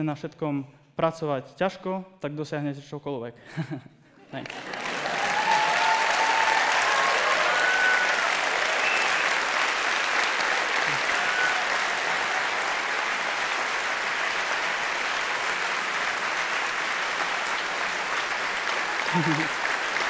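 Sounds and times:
audience applauding: 4.3 - 20.0.

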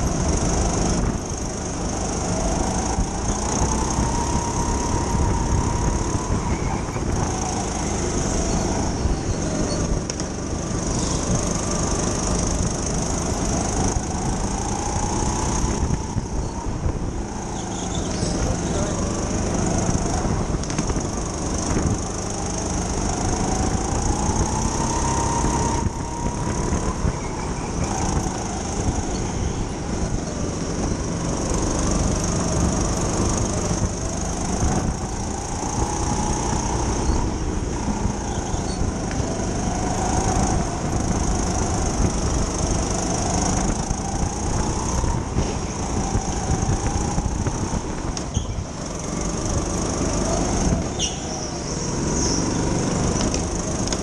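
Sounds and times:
go-kart motor accelerating: 0.0 - 54.0
steady rumble: 0.0 - 54.0.

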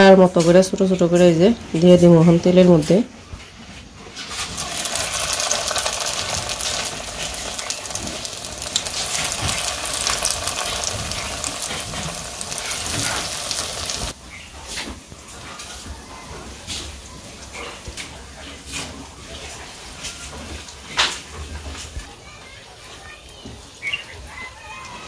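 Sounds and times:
fritters sizzling in hot oil: 4.2 - 14.2.

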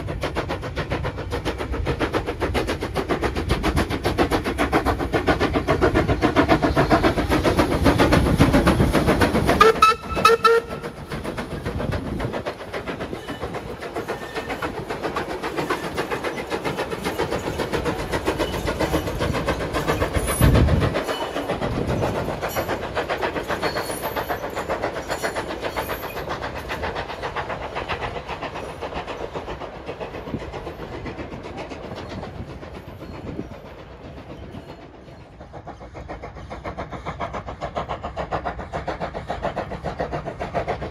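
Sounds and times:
steam locomotive exhaust beats: 0.0 - 40.9
train wheel clatter: 0.0 - 40.9
steam whistle: 9.6 - 11.0.

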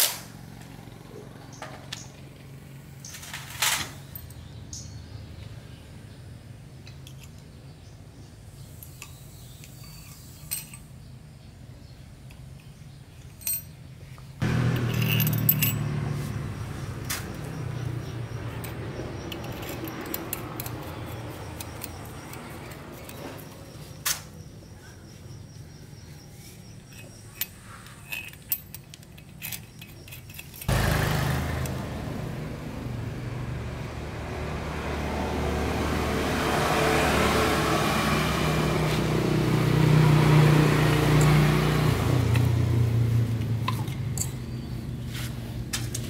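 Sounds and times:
motor-driven machine running: 14.4 - 18.6, 30.7 - 34.6.

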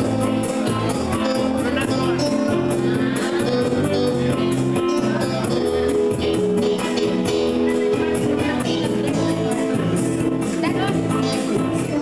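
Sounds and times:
dance music with guitar: 0.0 - 12.0.

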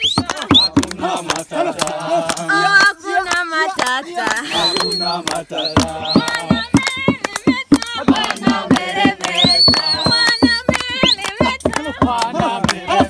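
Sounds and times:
clapped rhythm: 0.0 - 13.0
group singing together: 0.0 - 13.0.

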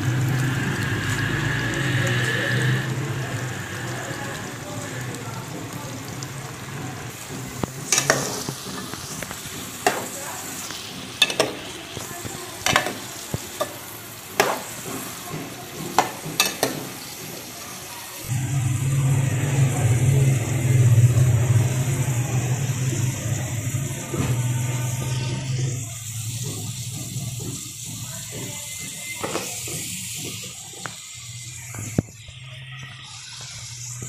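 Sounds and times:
carrots sizzling in oil: 0.0 - 34.0
low hum: 18.2 - 26.3.

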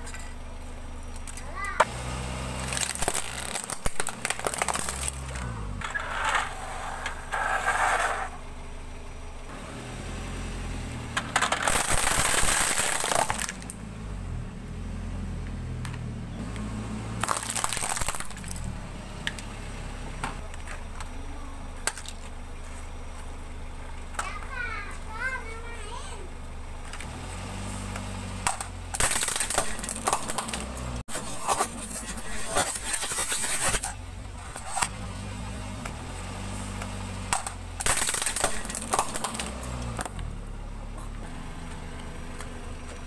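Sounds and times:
car engine running: 0.0 - 43.0
plastic toys cracking and crunching: 2.6 - 5.5, 11.2 - 13.8, 17.2 - 18.7, 28.5 - 34.0, 37.3 - 40.2.

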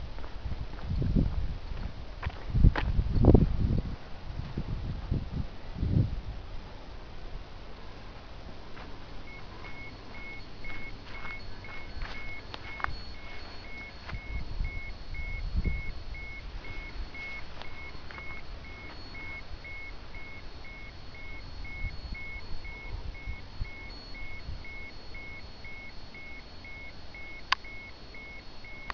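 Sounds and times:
radiation dosimeter beeping: 8.8 - 28.9.

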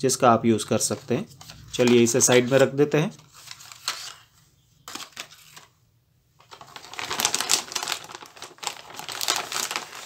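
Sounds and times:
plastic pouch crinkling: 6.4 - 10.0.

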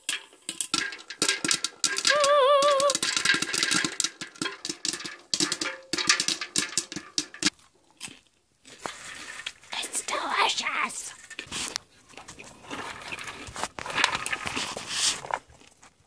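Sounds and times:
popcorn popping: 0.0 - 9.8.

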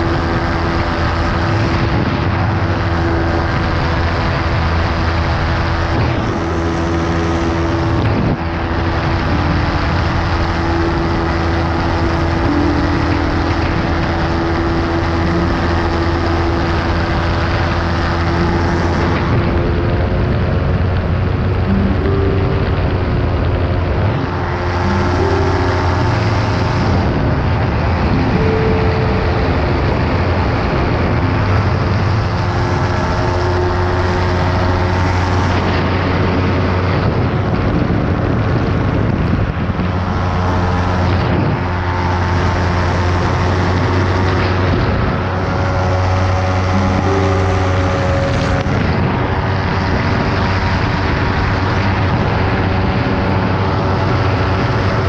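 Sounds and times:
propeller engine drone: 0.0 - 55.0.

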